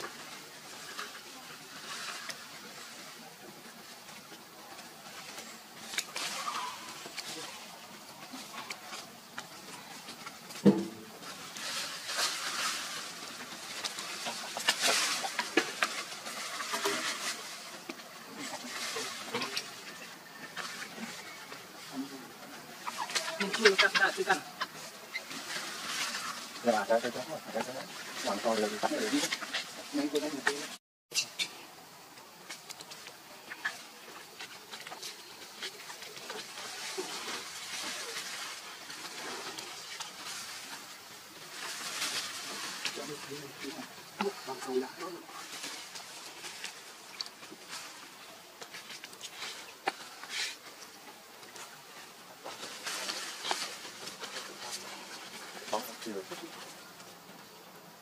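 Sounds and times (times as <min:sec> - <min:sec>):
steady hiss: 0:00.0 - 0:58.0.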